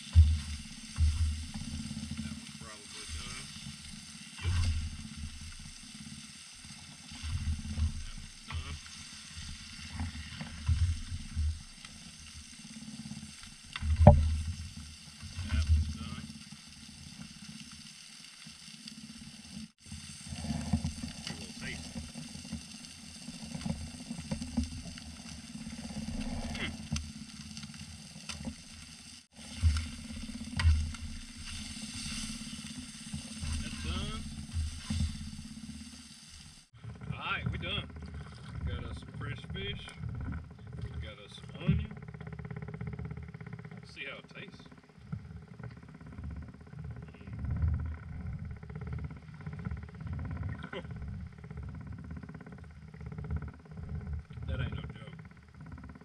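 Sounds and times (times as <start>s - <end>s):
low thumps on microphone: 0.0s - 2.4s, 4.4s - 5.7s
low rumbles: 0.0s - 17.4s, 19.8s - 56.0s.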